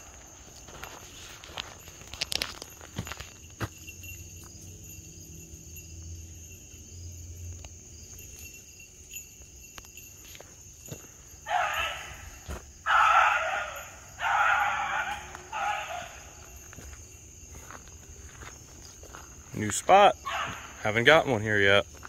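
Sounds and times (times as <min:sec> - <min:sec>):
insects chirring: 0:00.0 - 0:22.0
dog baying: 0:11.5 - 0:12.3, 0:12.9 - 0:16.5, 0:20.2 - 0:20.8.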